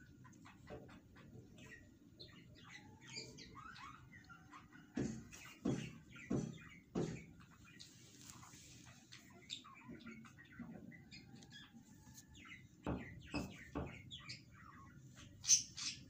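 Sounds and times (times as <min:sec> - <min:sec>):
sharp knocks: 0:05.0 - 0:07.5, 0:12.8 - 0:14.0
high bird-like chirps: 0:05.6 - 0:16.0.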